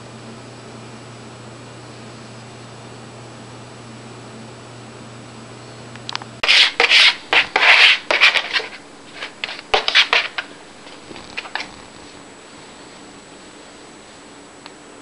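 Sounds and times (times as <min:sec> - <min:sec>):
cat scratching paper towels: 0:06.4 - 0:12.0.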